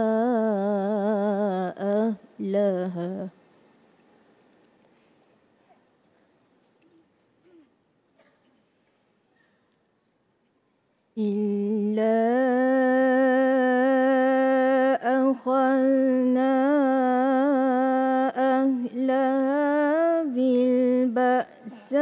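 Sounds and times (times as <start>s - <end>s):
woman reciting melodically: 0.0s - 3.5s, 11.2s - 22.0s.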